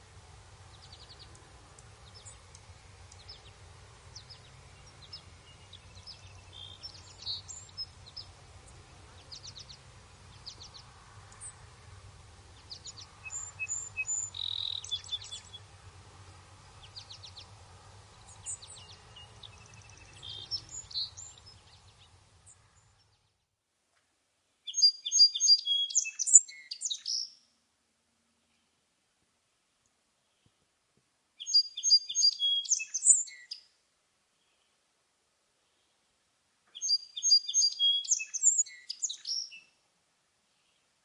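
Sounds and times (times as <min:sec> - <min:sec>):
faint low hum: 0:00.0 - 0:24.7
birds chirping and whistling: 0:04.2 - 0:08.3, 0:12.6 - 0:15.6, 0:18.3 - 0:22.1, 0:24.7 - 0:27.3, 0:31.4 - 0:33.6, 0:36.8 - 0:39.7.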